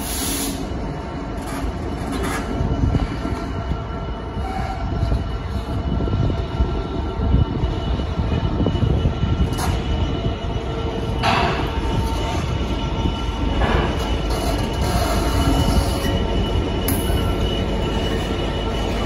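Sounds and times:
diesel locomotive engine: 0.0s - 19.0s
wheels rumbling on rails: 0.0s - 19.0s.

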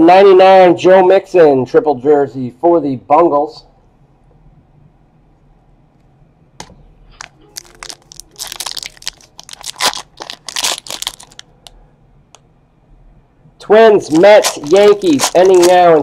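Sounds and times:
foil wrapper tearing and crinkling: 7.2s - 11.5s, 14.0s - 16.0s.

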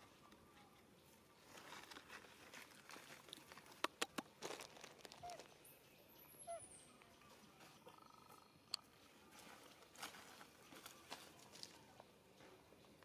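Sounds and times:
dry leaves crackling and rustling: 1.4s - 3.7s, 4.4s - 5.5s, 9.3s - 11.8s.

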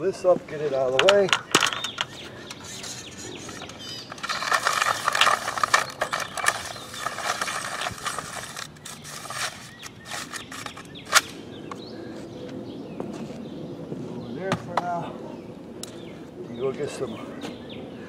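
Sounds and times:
cord being wound by hand: 1.4s - 10.9s.

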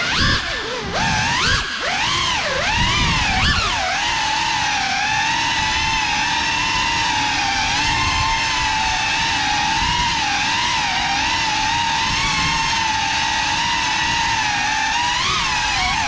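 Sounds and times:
quadcopter motors whining: 0.0s - 16.0s.

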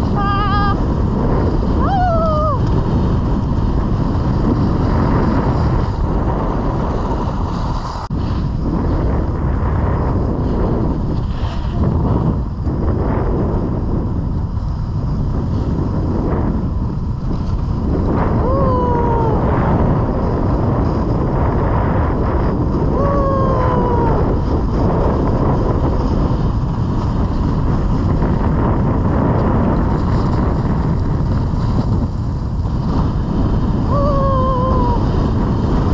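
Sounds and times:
wind rushing over microphone: 0.0s - 35.9s
skis sliding over snow: 2.4s - 13.8s, 23.6s - 33.9s.

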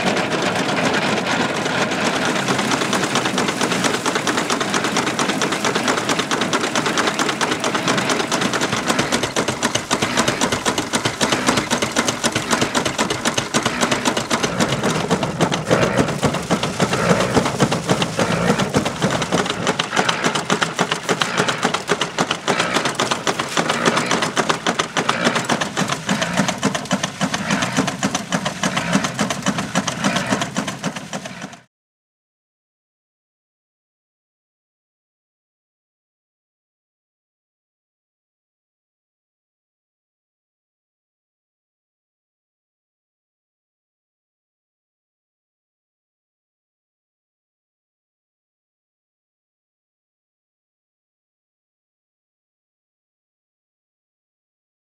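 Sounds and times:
threshing machine rattling: 0.0s - 31.7s.

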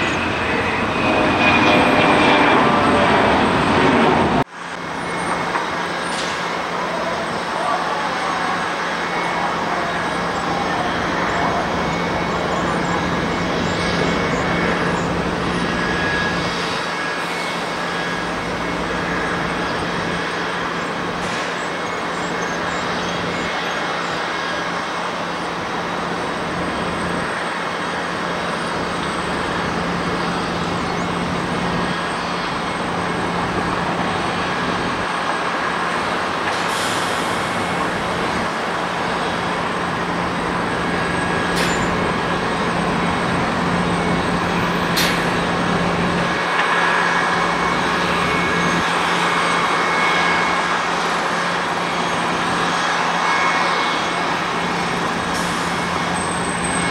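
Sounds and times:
jet engine noise: 0.0s - 56.9s.

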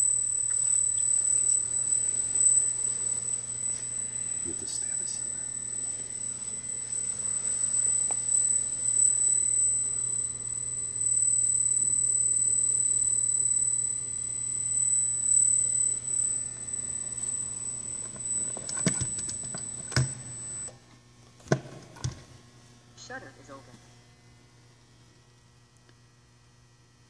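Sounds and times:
electric gear motor humming and whining: 0.0s - 20.8s.

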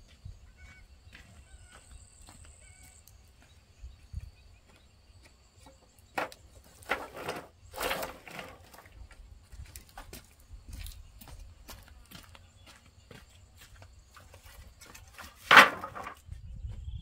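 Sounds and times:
wooden poles knocking together: 5.6s - 9.0s, 14.8s - 16.4s.

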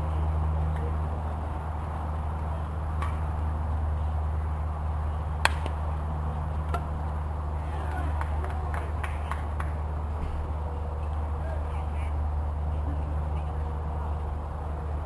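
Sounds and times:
steady low rumble: 0.0s - 15.0s
softball impact crack: 5.4s - 5.8s.

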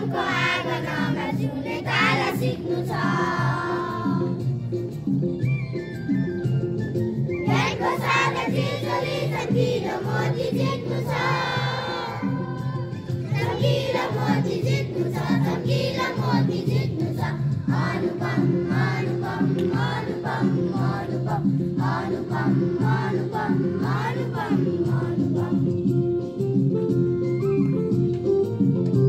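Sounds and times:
children singing in chorus: 0.0s - 4.4s, 7.5s - 12.6s, 13.3s - 25.7s
instrumental backing: 0.0s - 29.0s.

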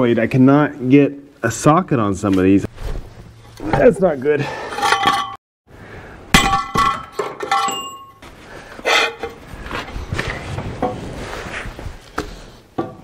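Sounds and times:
metal scrapes and knocks: 4.6s - 5.4s, 8.8s - 9.5s
metal tools clinking and clattering: 4.7s - 5.4s, 6.4s - 8.2s.

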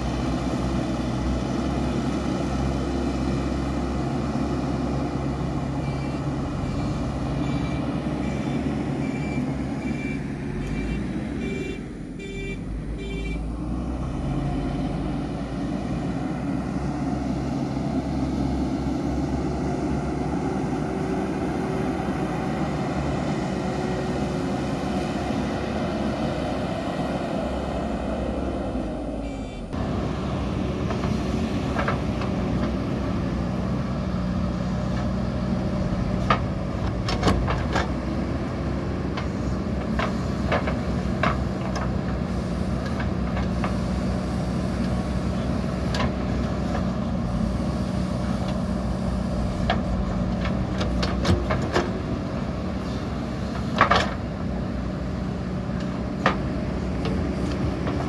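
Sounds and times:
diesel engines running: 0.0s - 58.0s
reversing alarm beeping: 5.8s - 13.4s.

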